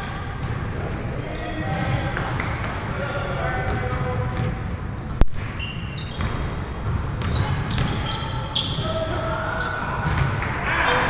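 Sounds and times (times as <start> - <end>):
sneakers squeaking: 0.0 - 11.0
basketball bounce: 6.1 - 8.1, 10.0 - 10.5.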